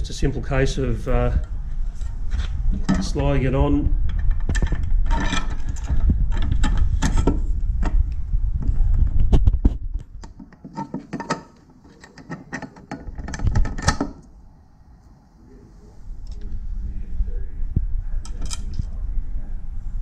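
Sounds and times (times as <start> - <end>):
low rumble: 0.0 - 10.4, 13.4 - 20.0
metallic clicks taps and scrapes: 10.1 - 14.3.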